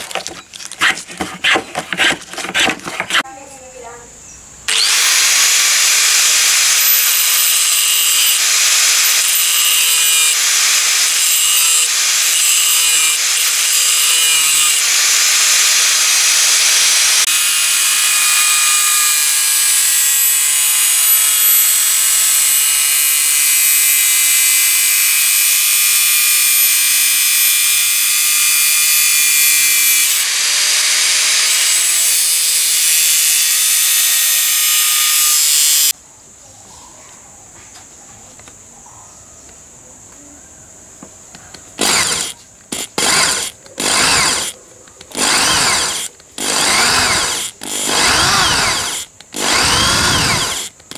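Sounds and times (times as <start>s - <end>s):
angle grinder grinding steel: 4.7s - 36.0s, 41.8s - 50.9s.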